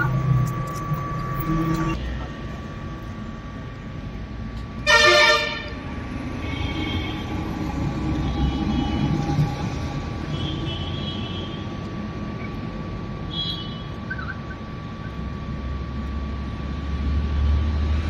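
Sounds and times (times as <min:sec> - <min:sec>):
vehicle horn blast: 0:04.8 - 0:05.8.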